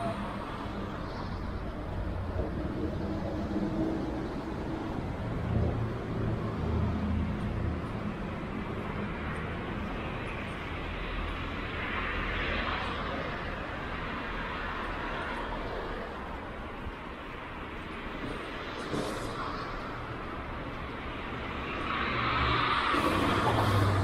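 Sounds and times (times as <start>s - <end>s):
vehicle engines humming: 0.0s - 24.0s
tyre hiss of passing car: 21.9s - 24.0s.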